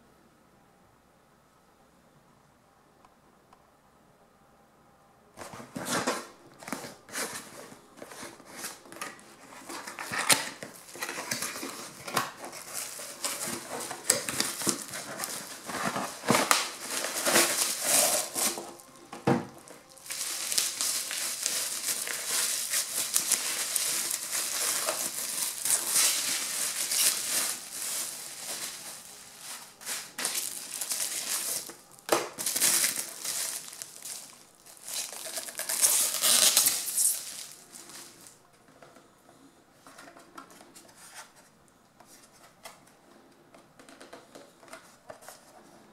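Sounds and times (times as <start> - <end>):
bubble wrap crinkling: 5.4 - 38.4.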